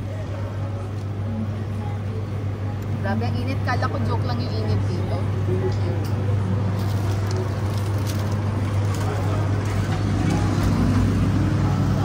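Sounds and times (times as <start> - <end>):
distant traffic: 3.1 - 12.0.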